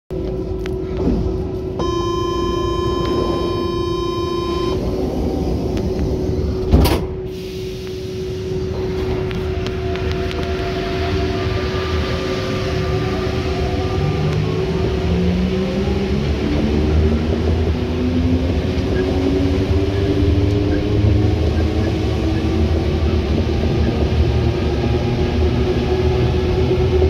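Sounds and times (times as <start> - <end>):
train hum and rumble: 0.1 - 27.0
traction motors whining: 0.6 - 17.6
door-closing buzzer: 1.8 - 4.8
sliding doors shutting: 4.8 - 8.0.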